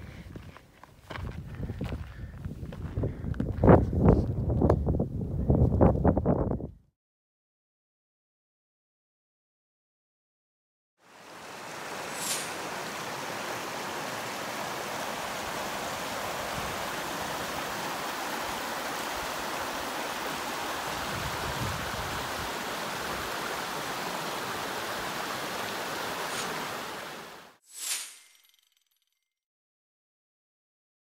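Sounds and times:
creek water rushing: 11.0 - 27.6.

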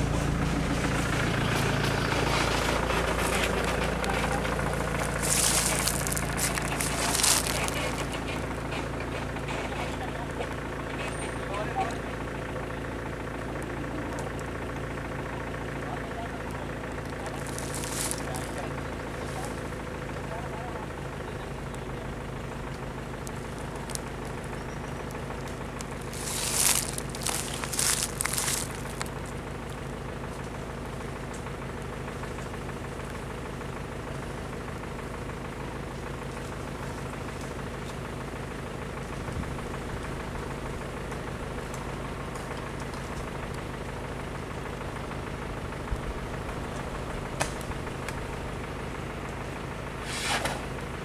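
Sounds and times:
vehicle engine idling: 0.0 - 51.0.

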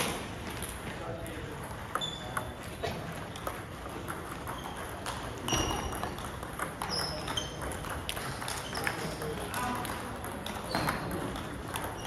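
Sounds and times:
table tennis ball knocking: 3.2 - 12.0.

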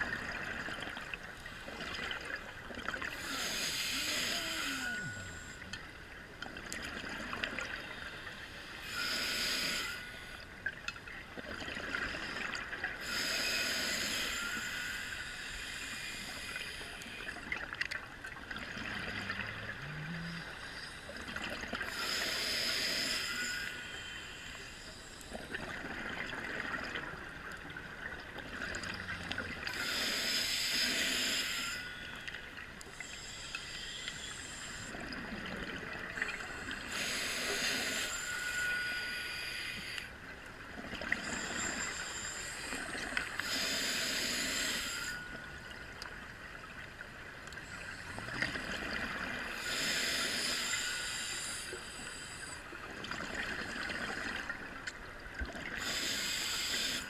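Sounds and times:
regulator hissing inhalations: 3.1 - 5.6, 7.9 - 10.4, 13.0 - 17.4, 21.8 - 25.4, 29.7 - 32.3, 32.9 - 35.0, 36.8 - 40.1, 41.2 - 45.3, 49.5 - 52.6, 55.8 - 57.0.

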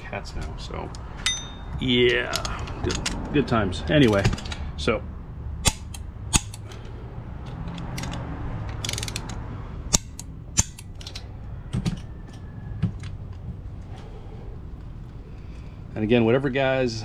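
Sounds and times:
torque wrench clicks: 7.5 - 11.2
torque wrench ratcheting: 7.6 - 11.2.

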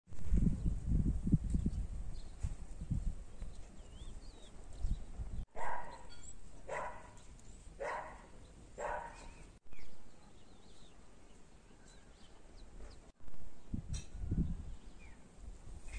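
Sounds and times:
faint birds chirping: 1.5 - 15.4
dog barking: 5.5 - 7.2, 7.8 - 9.4.

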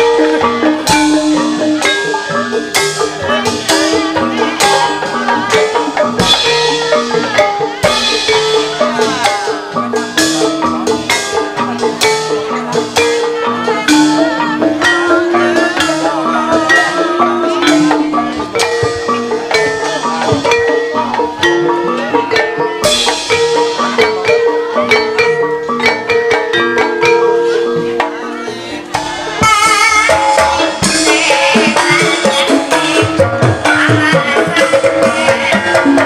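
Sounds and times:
drum strokes: 0.0 - 36.0
ringing metallophones and gongs: 0.0 - 36.0
woman singing with vibrato: 13.3 - 19.6, 27.9 - 36.0.

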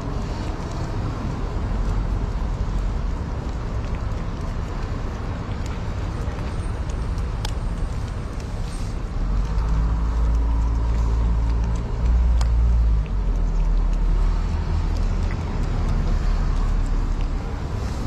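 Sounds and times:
vehicle engine rumbling: 0.0 - 18.0.

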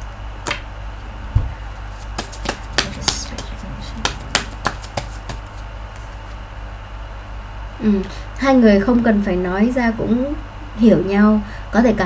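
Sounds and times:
low thump: 1.3 - 1.6
cards shuffling: 1.9 - 6.4.

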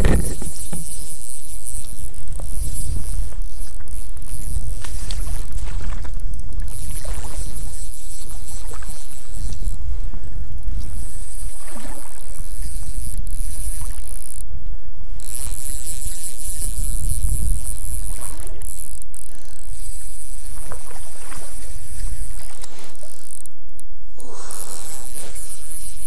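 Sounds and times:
wind buffeting microphone: 0.0 - 1.2.

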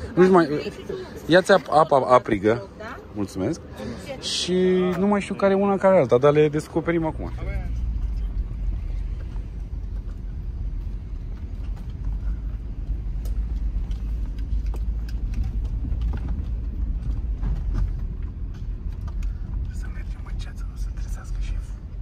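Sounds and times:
car engine and tyres rumbling: 0.0 - 22.0
light clicks and rattles: 8.0 - 20.8.

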